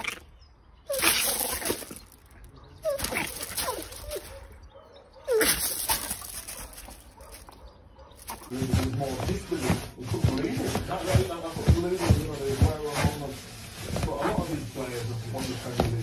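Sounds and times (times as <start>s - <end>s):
puppy yapping: 2.6s - 8.3s.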